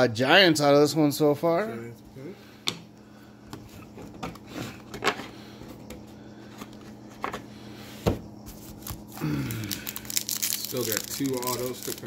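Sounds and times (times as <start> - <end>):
steady low hum: 0.0 - 12.0
foil packs rustling: 8.4 - 12.0.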